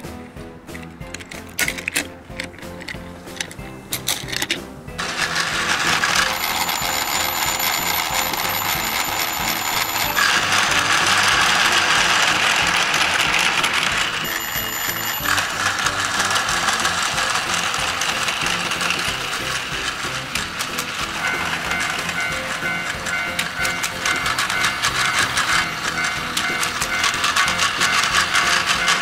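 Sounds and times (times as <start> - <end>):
background music: 0.0 - 29.0
toy train whirring rattle: 1.1 - 29.0
electronic bell ringing: 6.1 - 16.9, 21.0 - 29.0.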